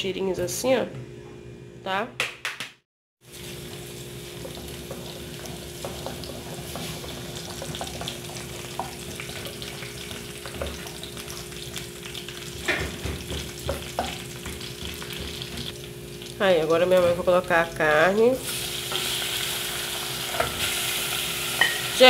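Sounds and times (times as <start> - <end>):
garlic sizzling in oil: 3.2 - 22.0
louder knocks on pan: 12.6 - 15.7.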